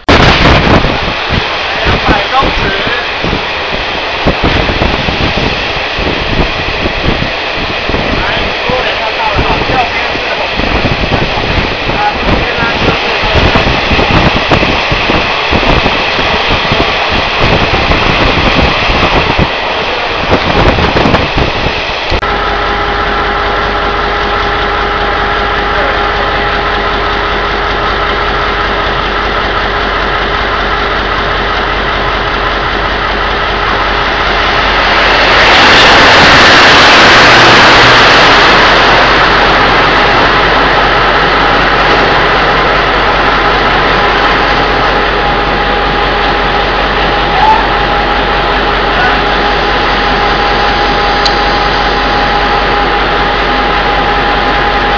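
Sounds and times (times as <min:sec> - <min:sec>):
locomotive engine hum: 0:00.0 - 0:54.9
train running noise and wind: 0:00.0 - 0:54.9
carriages rumbling past: 0:22.1 - 0:54.9.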